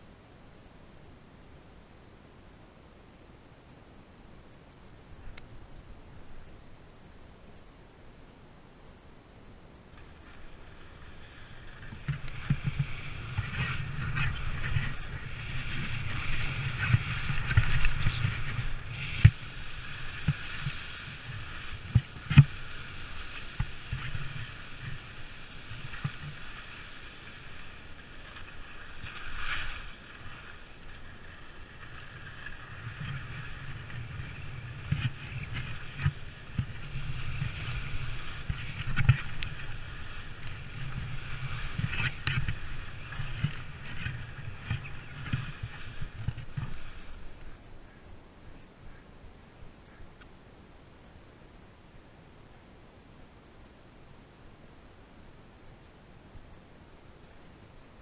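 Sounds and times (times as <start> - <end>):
skis scraping over snow: 9.9 - 47.7
wind rushing over microphone: 10.0 - 48.3.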